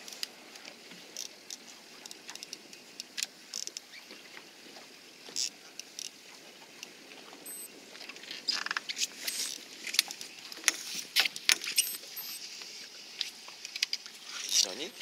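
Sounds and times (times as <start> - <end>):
fishing reel clicking and rattling: 1.2 - 3.9.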